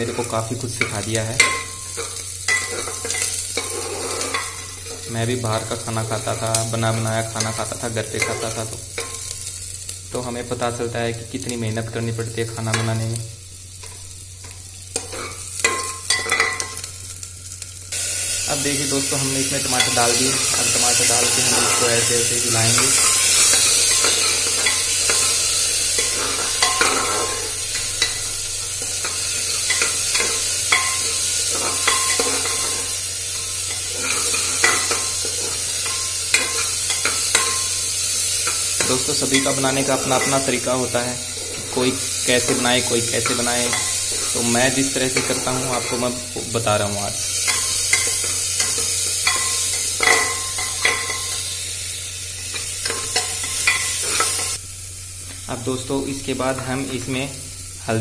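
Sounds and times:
vegetables sizzling in hot oil: 0:00.0 - 0:58.0
spoon scraping and knocking pot: 0:01.4 - 0:04.6
metal spoon scraping a pot: 0:01.4 - 0:05.0, 0:33.7 - 0:37.7.

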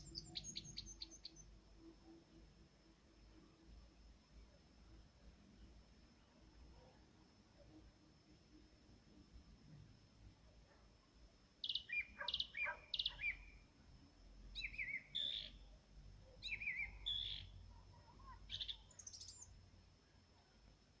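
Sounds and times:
nightingale singing: 0:00.0 - 0:01.5, 0:11.6 - 0:13.6, 0:14.6 - 0:19.6.

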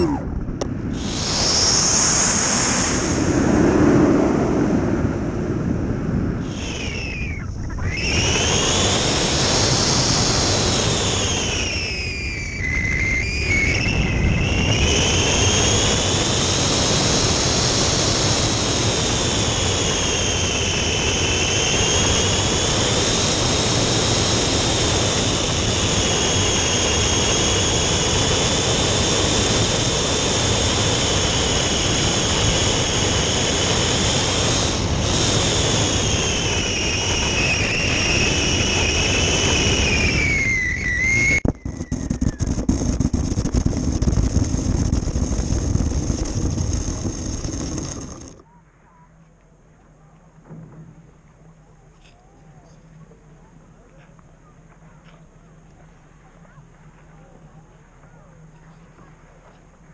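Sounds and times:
motor and propeller whining: 0:00.0 - 0:04.9, 0:06.4 - 0:48.5
rushing air noise: 0:00.0 - 0:48.4.

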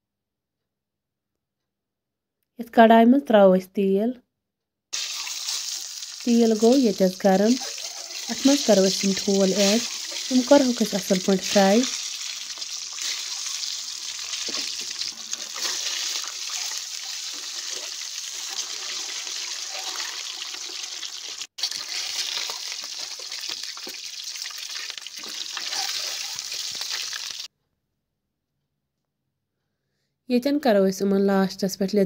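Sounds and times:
eggs frying in hot oil: 0:05.0 - 0:27.5.

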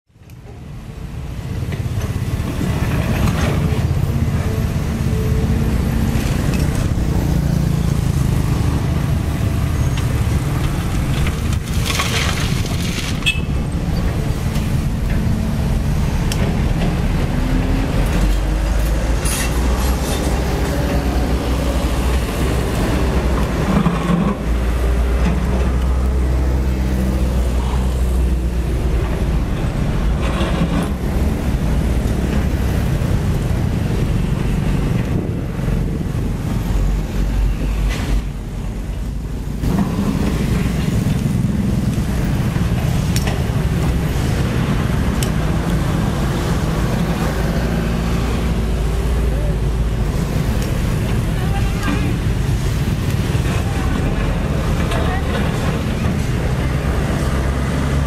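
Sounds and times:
road traffic passing: 0:00.1 - 0:58.0
excavator diesel engine: 0:00.4 - 0:58.0
excavator digging gravel: 0:06.2 - 0:26.2.

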